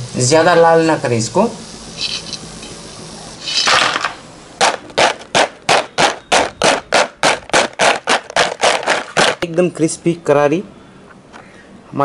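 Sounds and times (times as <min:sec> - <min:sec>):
fried snacks rattling in plastic bowl: 0:06.4 - 0:09.5.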